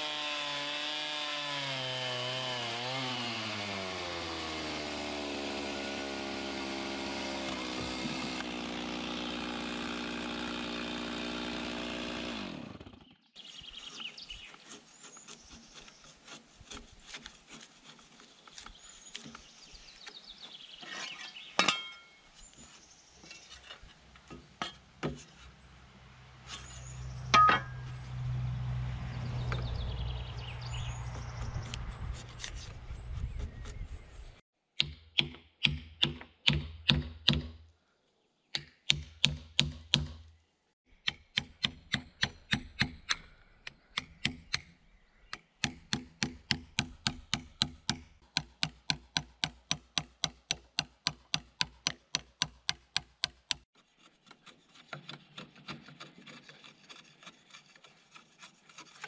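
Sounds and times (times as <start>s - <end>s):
hand tool striking wood: 7.1s - 8.5s, 24.2s - 25.3s, 27.4s - 28.0s, 34.8s - 37.6s, 38.5s - 40.3s, 41.0s - 44.7s, 45.3s - 57.4s.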